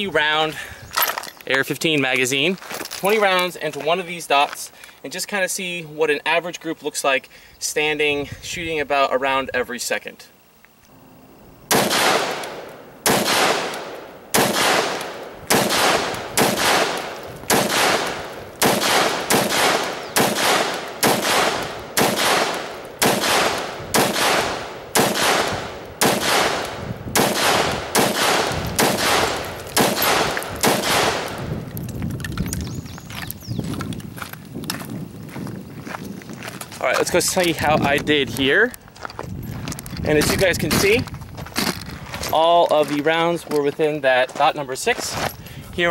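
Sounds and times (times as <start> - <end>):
rifle single shots with echo: 11.7 - 31.5.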